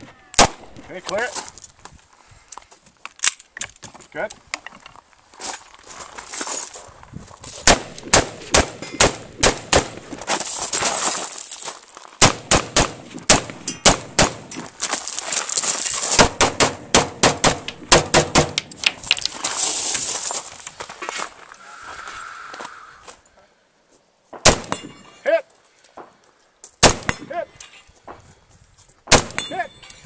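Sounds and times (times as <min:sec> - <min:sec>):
gunshots: 0:00.4 - 0:00.8, 0:07.6 - 0:10.1, 0:12.2 - 0:14.5, 0:16.2 - 0:18.6, 0:24.4 - 0:25.0, 0:26.8 - 0:27.4, 0:29.1 - 0:29.6.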